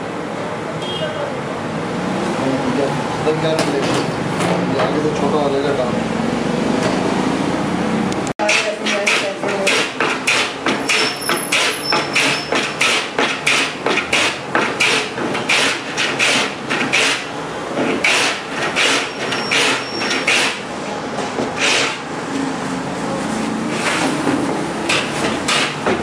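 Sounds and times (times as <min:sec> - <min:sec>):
sandpaper rubbing on board: 0:08.4 - 0:20.6, 0:21.6 - 0:22.0.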